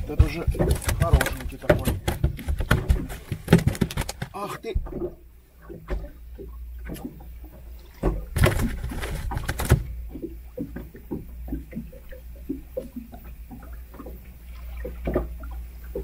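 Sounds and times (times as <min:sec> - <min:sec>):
light irregular knocks: 0:00.0 - 0:06.1
thumping and rustling in boat: 0:00.0 - 0:06.2, 0:06.8 - 0:14.2, 0:14.8 - 0:16.0.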